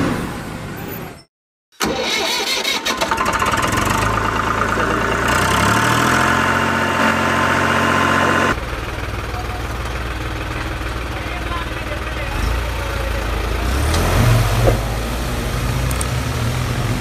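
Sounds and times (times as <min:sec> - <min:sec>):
tractor engine running: 0:01.8 - 0:14.1.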